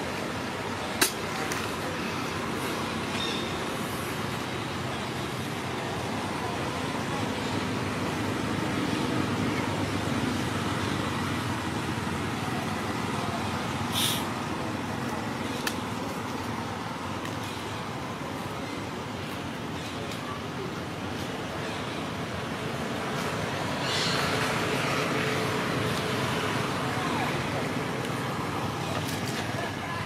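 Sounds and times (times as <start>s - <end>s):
background traffic: 0.0s - 30.0s
short hiss: 13.9s - 14.3s.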